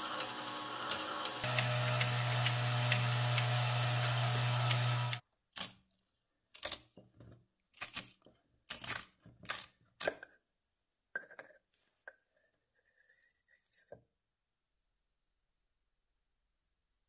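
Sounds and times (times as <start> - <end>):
cordless screwdriver running: 0.0 - 5.2.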